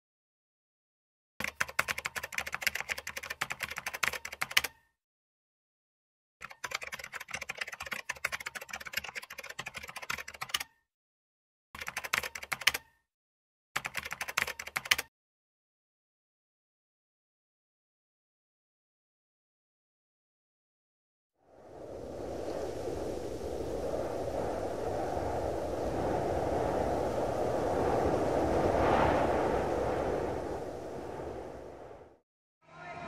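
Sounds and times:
keyboard typing clicks: 1.4s - 4.8s, 6.4s - 10.7s, 11.8s - 12.9s, 13.8s - 15.1s.

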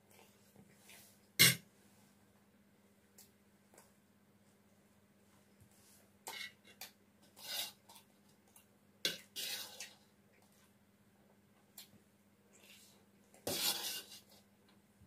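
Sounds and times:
spoon scraping a plate: 6.3s - 8.0s, 9.1s - 10.0s, 13.5s - 14.4s.

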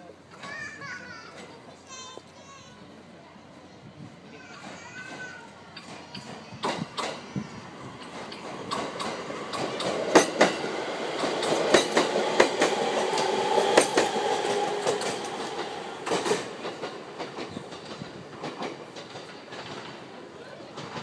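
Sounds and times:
train wheels clicking over rail joints: 4.4s - 21.0s
electric train whine: 7.0s - 20.4s.

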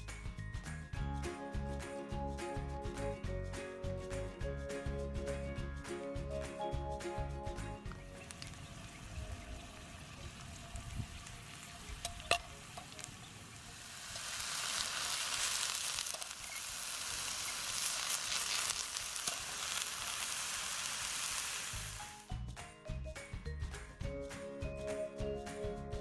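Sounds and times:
food sizzling in a frying pan: 8.3s - 22.3s.

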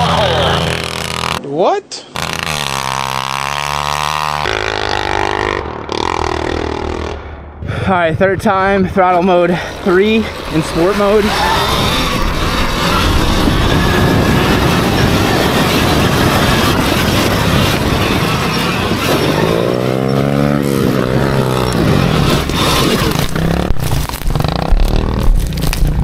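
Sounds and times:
electric dirt bike rushing: 0.0s - 1.4s, 2.1s - 7.6s, 8.6s - 26.0s
motor whine: 9.8s - 24.6s.

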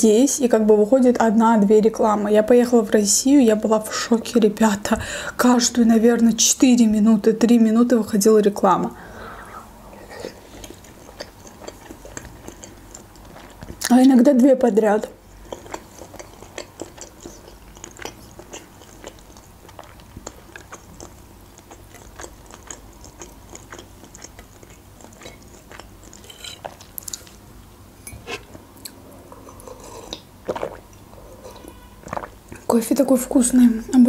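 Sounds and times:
wet chewing mouth sounds: 10.0s - 13.9s, 15.2s - 27.4s, 28.1s - 32.6s.

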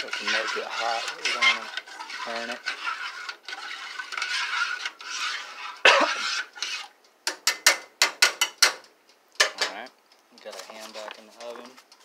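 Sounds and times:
utensil scraping metal saucepan: 0.0s - 7.6s.

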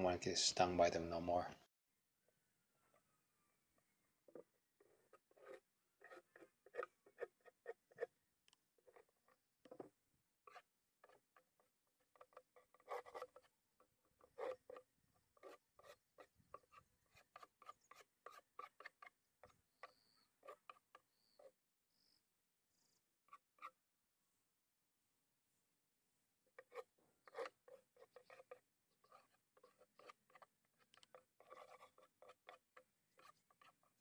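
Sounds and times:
hive tool scraping wooden box: 4.2s - 21.5s, 26.5s - 34.0s.

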